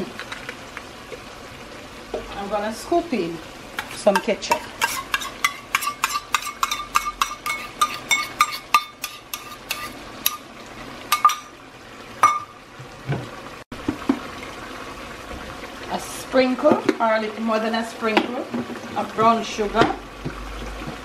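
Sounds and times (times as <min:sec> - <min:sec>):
chicken sizzling in pot: 0:00.0 - 0:21.0
spoon clinking against glass bowl: 0:04.8 - 0:10.4.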